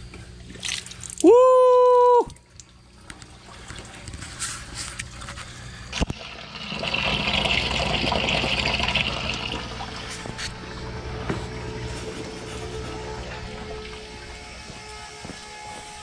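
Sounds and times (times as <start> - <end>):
water pump humming: 0.0 - 16.0
water splashing into plastic bucket: 5.9 - 10.0
water trickling into sink: 6.0 - 10.2.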